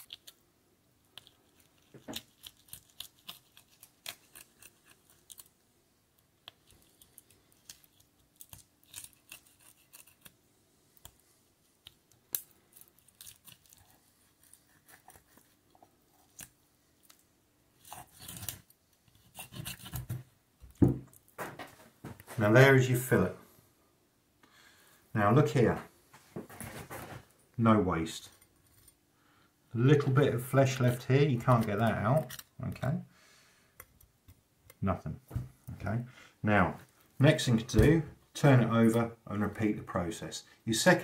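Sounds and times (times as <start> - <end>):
knife scraping over fish bones: 6.6 - 10.4, 17.8 - 20.2.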